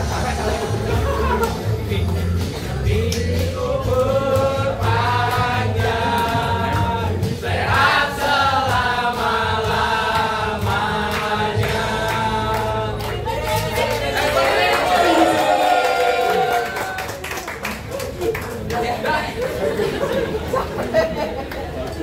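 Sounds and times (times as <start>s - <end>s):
steady low bass line: 0.0s - 14.2s
choir singing: 2.8s - 15.5s.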